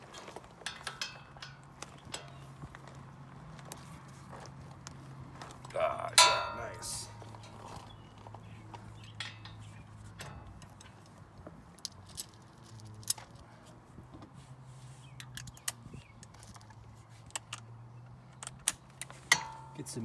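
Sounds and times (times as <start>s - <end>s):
low steady hum: 5.7s - 11.0s
wrench metallic clinks and knocks: 6.2s - 7.6s.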